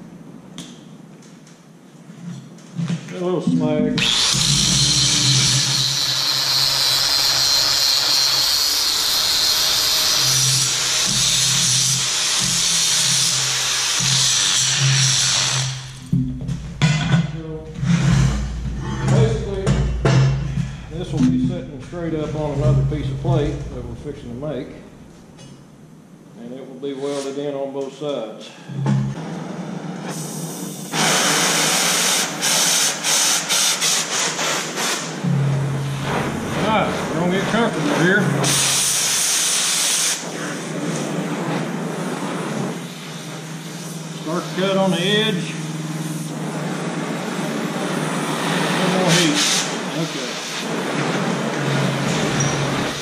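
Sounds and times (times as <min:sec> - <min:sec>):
cutting torch flame hissing: 0:04.0 - 0:16.1, 0:29.2 - 0:53.0
angle grinder grinding metal: 0:04.0 - 0:16.2.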